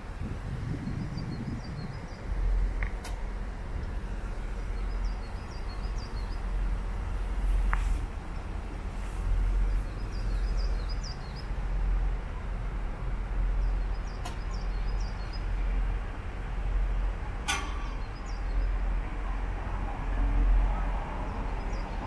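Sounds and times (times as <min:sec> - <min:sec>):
wind buffeting microphone: 0:00.0 - 0:22.0
small birds chirping: 0:04.6 - 0:06.6, 0:09.6 - 0:11.6, 0:13.6 - 0:15.6, 0:17.7 - 0:18.8
sharp click: 0:17.5 - 0:18.1.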